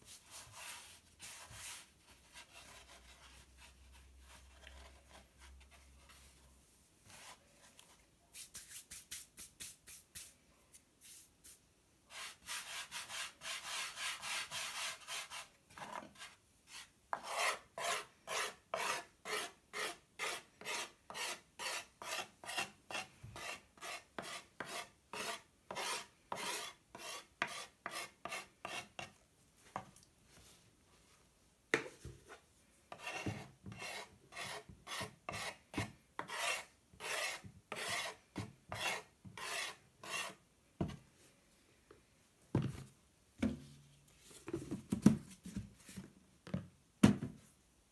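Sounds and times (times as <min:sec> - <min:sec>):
knife scraping wooden board: 0:12.2 - 0:29.1, 0:32.3 - 0:40.4.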